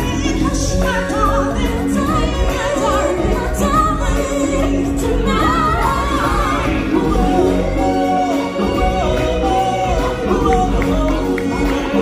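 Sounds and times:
voices singing with vibrato: 0:00.0 - 0:12.0.

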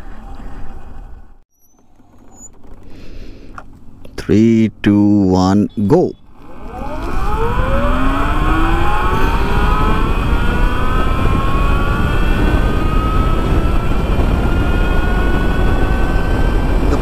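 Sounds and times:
electric motor whine rising: 0:06.3 - 0:17.0
wind rush on microphone: 0:06.4 - 0:17.0.

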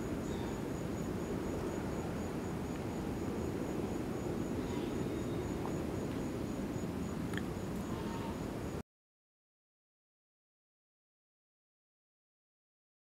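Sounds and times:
insect chirping: 0:00.0 - 0:08.8.

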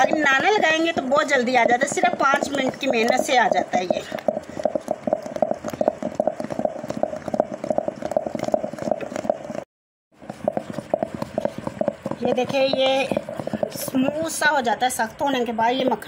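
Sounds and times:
hand churner knocking against steel pot: 0:00.0 - 0:09.6, 0:10.2 - 0:15.2
wet churning of cream: 0:00.0 - 0:16.0.

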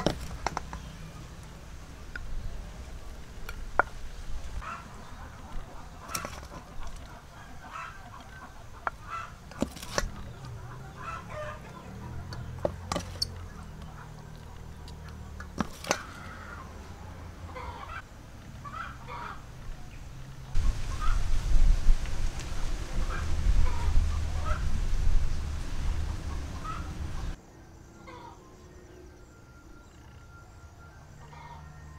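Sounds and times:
chickens clucking: 0:04.6 - 0:18.0, 0:18.6 - 0:19.4, 0:20.6 - 0:21.2, 0:23.0 - 0:24.7, 0:25.9 - 0:27.4.

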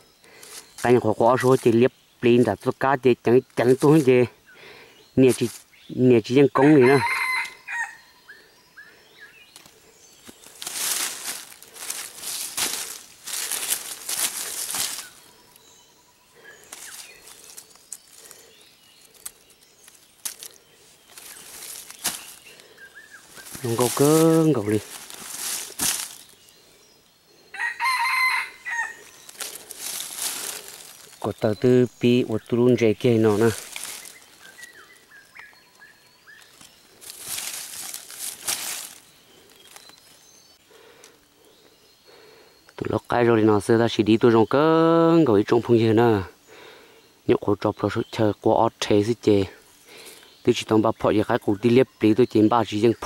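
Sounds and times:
rustling dry leaves: 0:00.1 - 0:02.8, 0:03.6 - 0:08.0, 0:09.2 - 0:41.3
twig snaps: 0:09.5 - 0:15.2, 0:19.0 - 0:22.4, 0:24.9 - 0:26.4, 0:29.3 - 0:31.2, 0:33.3 - 0:34.8, 0:36.4 - 0:40.1.

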